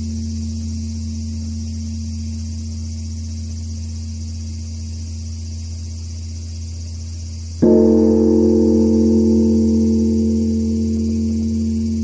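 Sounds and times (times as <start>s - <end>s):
temple bell humming: 7.6s - 12.0s.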